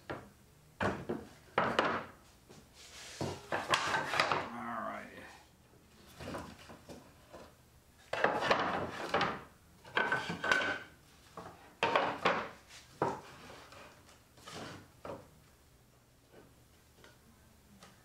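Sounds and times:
plywood pieces clattering: 0:03.3 - 0:04.5, 0:08.1 - 0:13.9.

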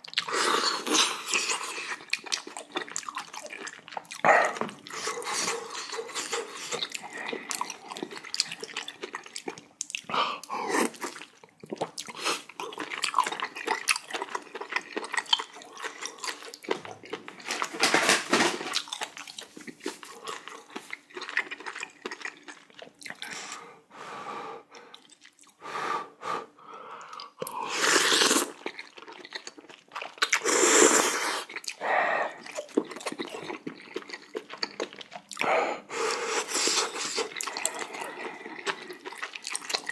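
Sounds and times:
wet chewing and mouth clicks: 0:00.0 - 0:17.9, 0:18.6 - 0:23.6, 0:24.7 - 0:25.6, 0:27.0 - 0:39.9
slurping noodles: 0:27.5 - 0:28.6, 0:30.3 - 0:31.6, 0:36.0 - 0:39.9.

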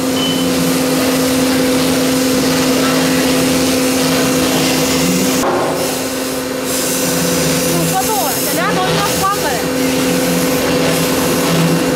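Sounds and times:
hiss of cutting: 0:00.9 - 0:11.9
router spindle running: 0:07.0 - 0:11.9.

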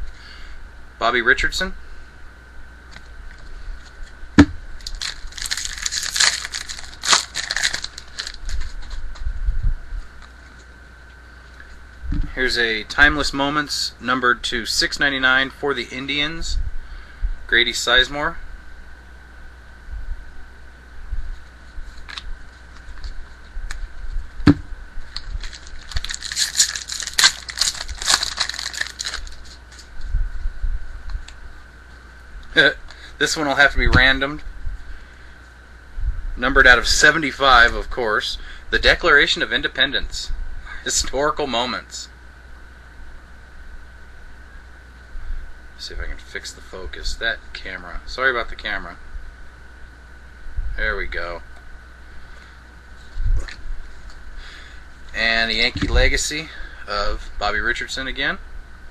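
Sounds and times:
cards rustling and clicking: 0:04.8 - 0:09.0, 0:25.1 - 0:29.9
plastic wrapper crinkling: 0:04.8 - 0:09.0, 0:25.1 - 0:30.0
sharp knock: 0:24.4 - 0:24.7
soft bump: 0:24.4 - 0:24.7.

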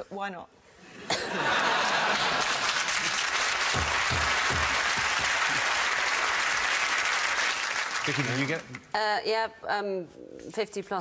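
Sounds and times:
studio audience applauding: 0:01.7 - 0:08.9.

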